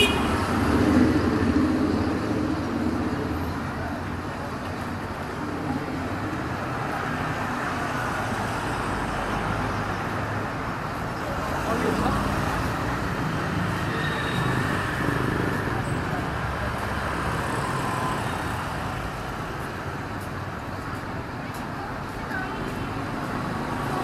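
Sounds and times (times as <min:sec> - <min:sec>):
cars passing: 0:00.0 - 0:24.0
motorbike engines: 0:00.0 - 0:24.0.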